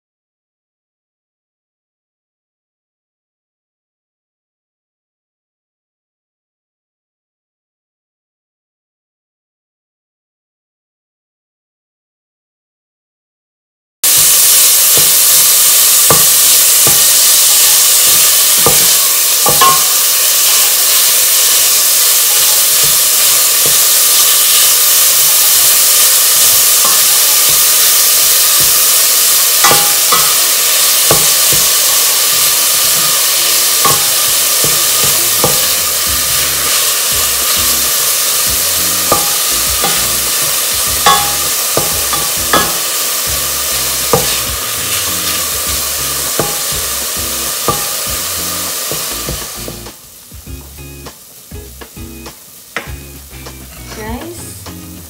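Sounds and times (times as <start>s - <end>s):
meat sizzling in a pot: 14.0s - 55.0s.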